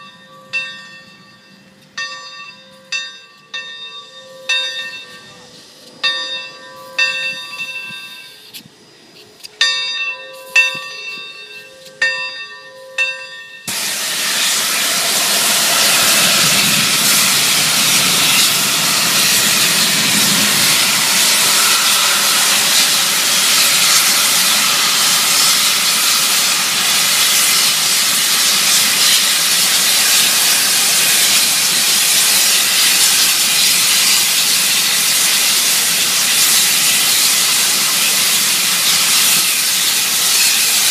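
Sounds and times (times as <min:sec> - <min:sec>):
locomotive bell ringing: 0:00.0 - 0:08.6, 0:09.4 - 0:13.9, 0:15.0 - 0:33.0
steam hissing: 0:13.6 - 0:40.9.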